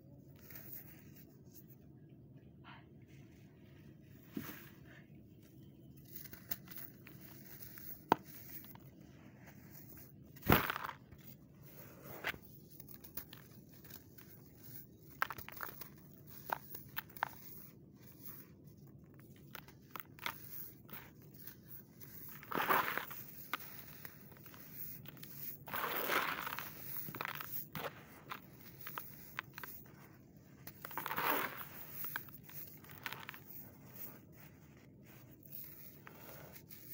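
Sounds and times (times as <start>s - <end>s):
sandy soil crumbled by hand: 10.4s - 11.1s, 22.1s - 29.9s, 30.7s - 34.1s.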